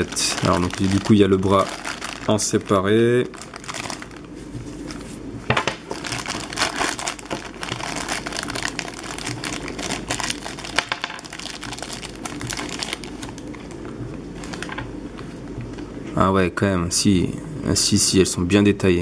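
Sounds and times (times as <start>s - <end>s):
plastic bags crinkling: 0.0s - 14.9s.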